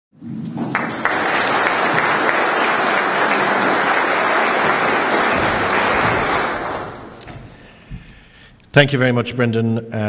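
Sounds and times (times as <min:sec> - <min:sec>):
audience applauding: 0:00.6 - 0:07.7.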